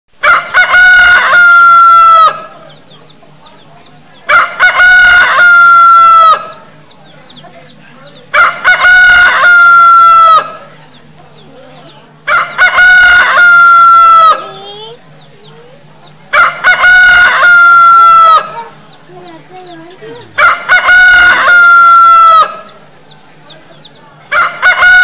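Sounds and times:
rooster crowing: 0.2 - 2.5, 4.3 - 6.6, 8.4 - 10.6, 12.3 - 15.0, 16.3 - 18.8, 20.0 - 22.8, 24.3 - 25.0.

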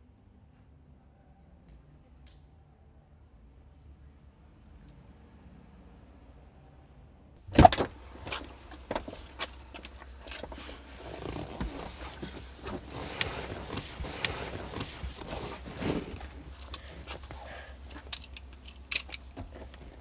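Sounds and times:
clicks and rattles: 16.2 - 20.0.

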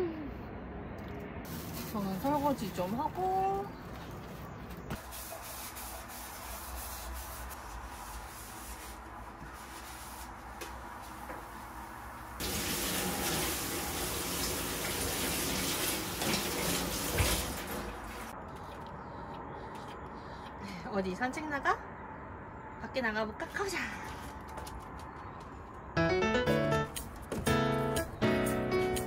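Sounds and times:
dishes being rinsed: 12.4 - 18.3
tap water running into sink: 12.4 - 18.3.

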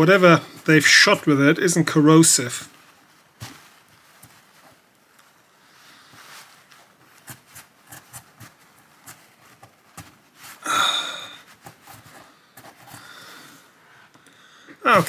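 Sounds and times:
breathy sound: 10.6 - 11.5, 12.1 - 14.9.

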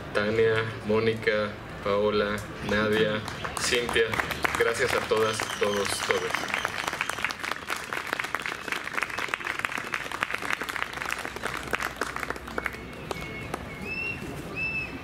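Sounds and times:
audience applauding: 3.2 - 13.7.

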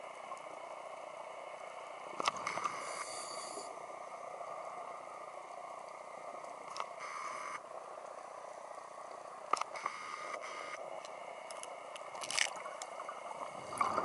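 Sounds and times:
steady underwater hiss: 0.0 - 14.0
scuba regulator breath: 2.7 - 3.7.

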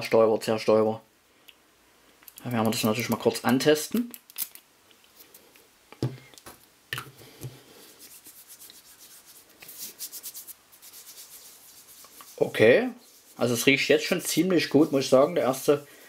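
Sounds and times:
skin rubbing on skin: 7.7 - 16.0.

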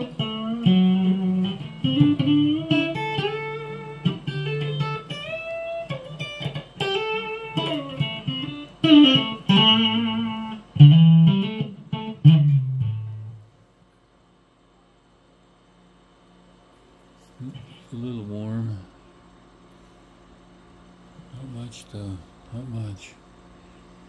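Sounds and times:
electric guitar notes and phrases: 0.0 - 13.5.

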